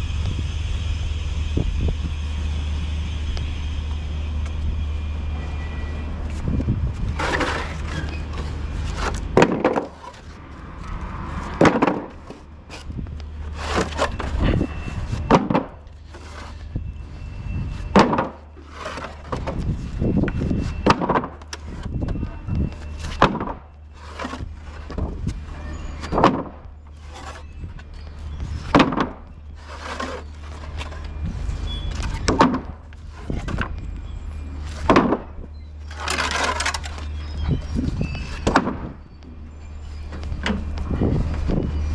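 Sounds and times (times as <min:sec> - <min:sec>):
low steady rumble: 0:00.0 - 0:41.9
wooden pallets knocking on paving: 0:09.4 - 0:10.0, 0:11.6 - 0:12.3, 0:15.2 - 0:15.8, 0:18.0 - 0:18.4, 0:20.8 - 0:21.6, 0:22.7 - 0:23.7, 0:28.7 - 0:29.2, 0:32.2 - 0:32.8, 0:34.8 - 0:35.4.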